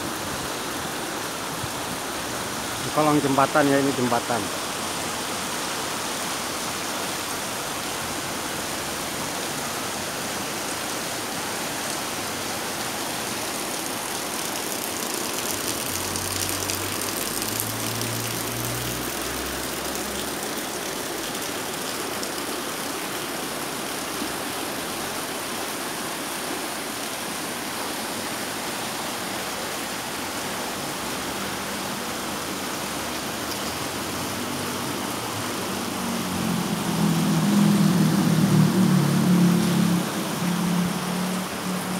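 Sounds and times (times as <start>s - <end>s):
water rushing over rocks: 0.0s - 41.9s.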